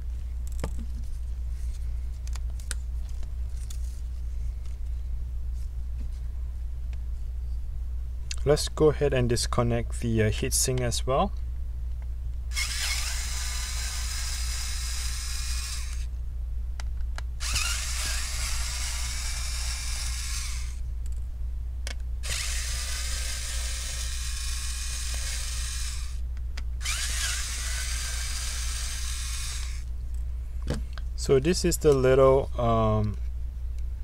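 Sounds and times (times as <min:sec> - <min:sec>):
electric screwdriver whirring: 0:12.5 - 0:16.1, 0:17.4 - 0:20.8, 0:22.2 - 0:26.2, 0:26.8 - 0:29.8.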